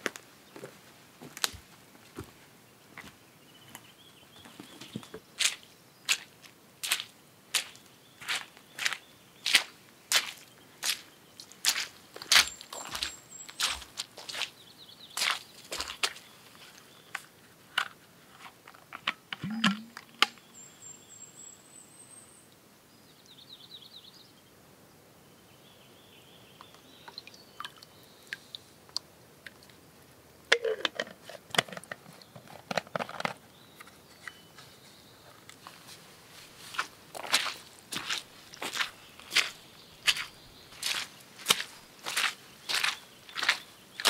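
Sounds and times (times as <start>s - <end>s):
plastic water bottle handled: 17.8s - 20.4s, 30.5s - 34.4s
birds chirping: 19.4s - 22.4s, 37.4s - 44.0s
boots crunching on twigs: 36.6s - 43.6s.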